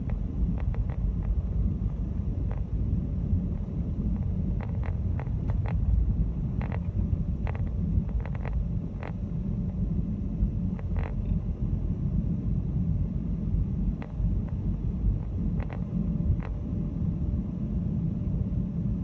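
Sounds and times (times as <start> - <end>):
car road and engine rumble: 0.0 - 19.0.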